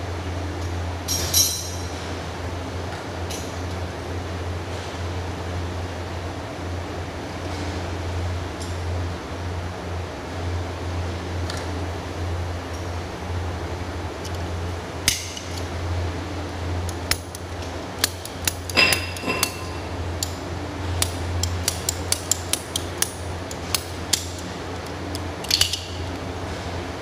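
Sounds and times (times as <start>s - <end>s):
steady low hum: 0.0s - 27.0s
pipe fittings clicking and clinking: 16.9s - 20.4s, 21.0s - 26.0s.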